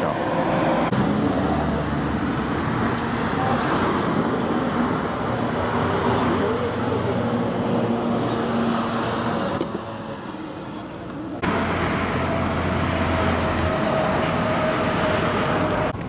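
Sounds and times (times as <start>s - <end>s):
road traffic passing: 0.0s - 16.0s.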